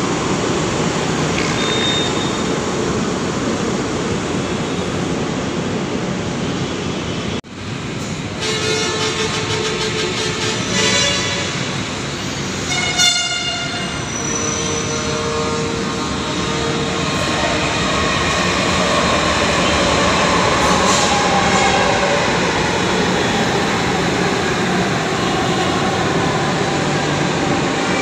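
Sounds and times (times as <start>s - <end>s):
train rolling noise: 0.0s - 28.0s
train horn blast: 8.4s - 11.8s, 12.6s - 17.7s.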